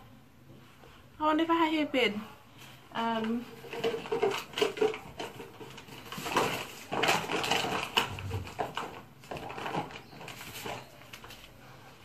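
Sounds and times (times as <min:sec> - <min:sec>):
rummaging through small items: 0:02.6 - 0:12.0.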